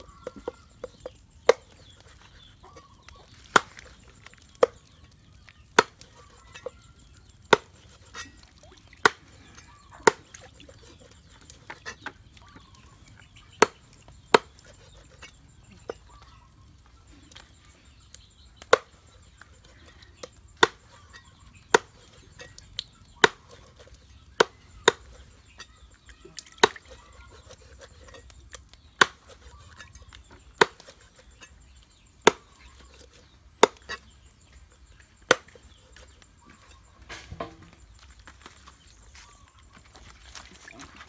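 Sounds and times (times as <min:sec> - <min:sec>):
cleaver chopping on wooden block: 0:07.5 - 0:08.2, 0:13.6 - 0:15.1, 0:20.6 - 0:21.0, 0:21.7 - 0:22.1, 0:23.2 - 0:23.8, 0:24.4 - 0:25.2, 0:26.6 - 0:28.0, 0:29.0 - 0:29.6, 0:30.6 - 0:31.1, 0:32.2 - 0:32.8, 0:33.6 - 0:34.0, 0:35.3 - 0:36.1.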